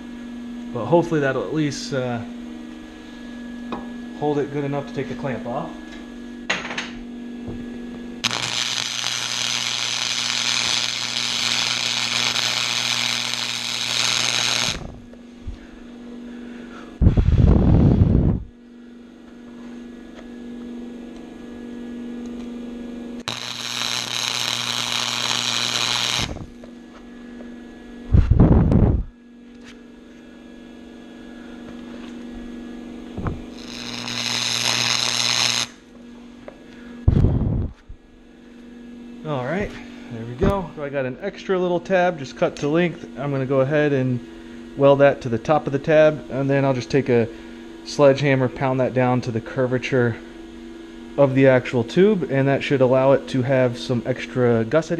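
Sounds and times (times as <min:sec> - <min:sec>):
electrical hum: 0:00.0 - 0:54.9
welding arc sizzling: 0:08.2 - 0:15.6, 0:23.2 - 0:27.0, 0:31.8 - 0:36.1
loud low muffled bumps: 0:28.1 - 0:29.1, 0:37.1 - 0:37.9.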